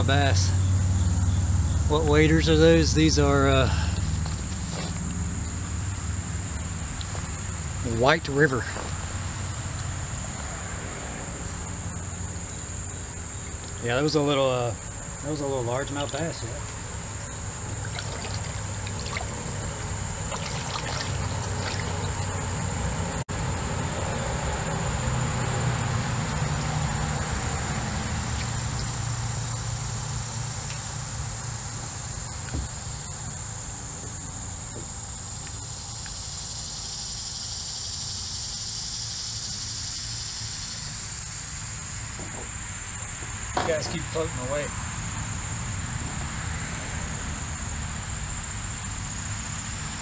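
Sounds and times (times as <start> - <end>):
high-pitched insect drone: 0.0 - 50.0
creek water trickling and sloshing: 3.7 - 6.0, 15.8 - 23.0, 28.0 - 29.5.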